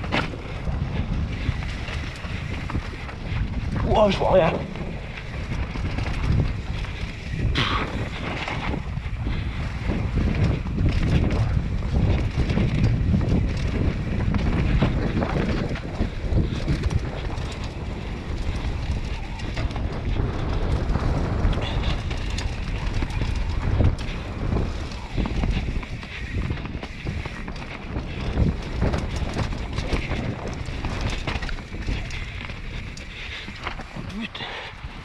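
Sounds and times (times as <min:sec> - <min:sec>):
bike clacking and rattling: 0:00.0 - 0:35.0
bike tyres rumbling over dirt: 0:00.0 - 0:35.0
wind buffeting microphone: 0:00.0 - 0:35.0.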